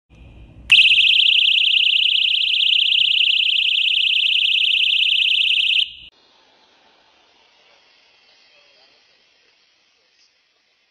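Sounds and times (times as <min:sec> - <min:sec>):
personal alarm shrieking: 0:00.7 - 0:06.1.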